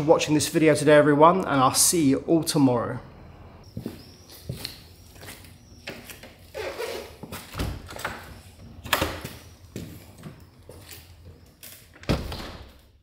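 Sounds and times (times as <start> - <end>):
doors banging shut: 6.6 - 9.4, 11.9 - 12.8.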